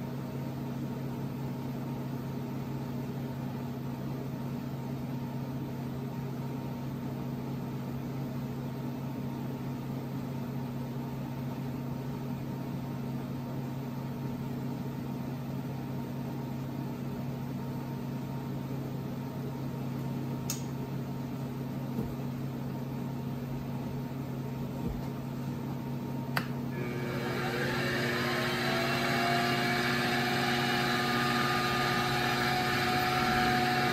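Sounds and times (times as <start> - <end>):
motor humming: 26.7 - 33.9.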